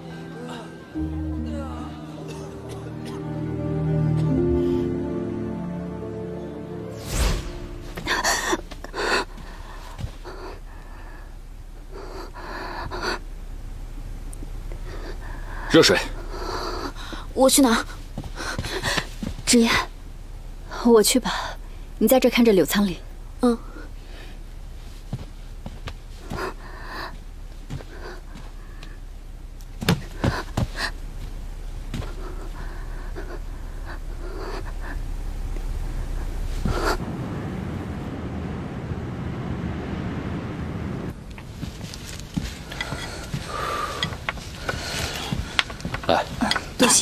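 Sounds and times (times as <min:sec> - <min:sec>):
short sharp hit: 0:06.9 - 0:08.2
woman gasping and breathing raggedly: 0:08.0 - 0:13.2, 0:26.2 - 0:29.0, 0:30.0 - 0:31.1, 0:32.0 - 0:35.2, 0:42.6 - 0:45.7.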